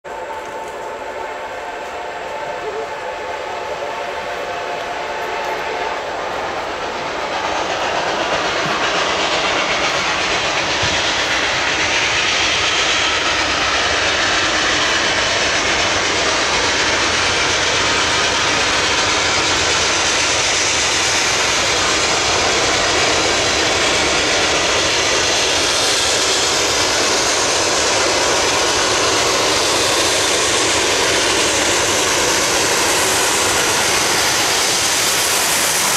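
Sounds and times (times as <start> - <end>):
steam locomotive running roar: 0.0 - 35.9
steam locomotive whistle: 0.1 - 6.8.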